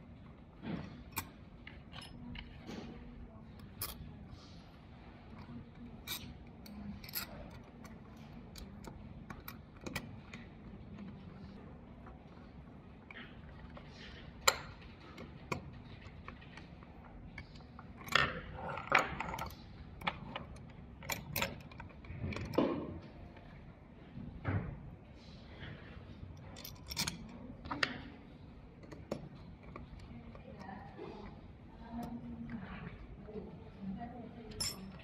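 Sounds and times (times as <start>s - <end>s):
metal bracket parts clinking: 26.4s - 27.3s, 34.5s - 35.0s.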